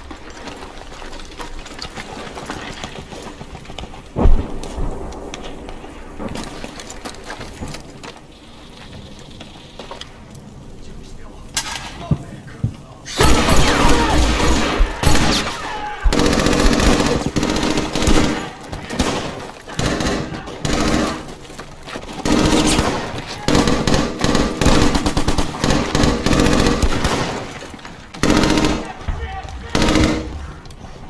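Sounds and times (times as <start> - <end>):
machine-gun and rifle fire: 13.2 - 21.5, 22.1 - 30.6.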